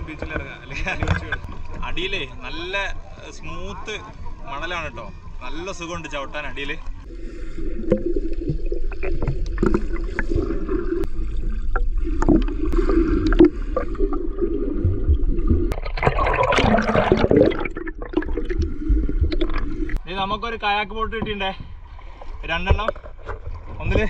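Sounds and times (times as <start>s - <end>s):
muffled underwater bubbling: 7.0s - 20.0s.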